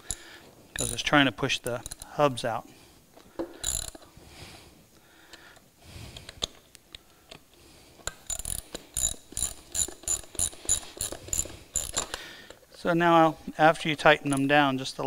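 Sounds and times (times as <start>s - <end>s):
socket ratchet clicking: 0.0s - 2.2s, 3.6s - 4.1s, 8.1s - 12.2s.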